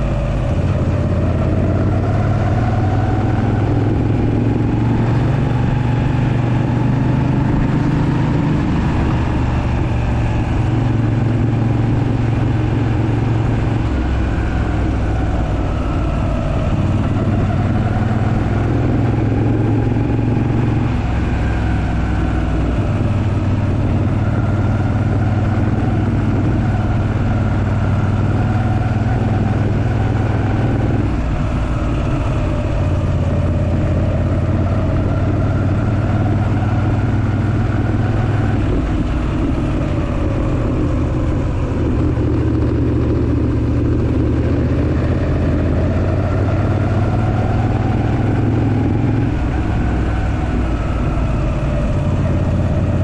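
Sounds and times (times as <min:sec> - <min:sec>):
motorcycle engine running: 0:00.0 - 0:53.0
road and wind noise: 0:00.0 - 0:53.0.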